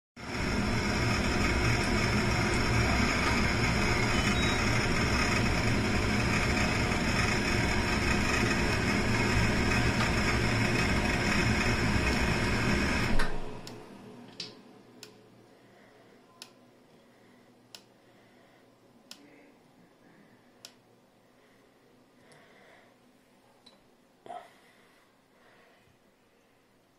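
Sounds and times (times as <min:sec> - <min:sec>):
mechanical whir with low hum: 0:00.2 - 0:15.5.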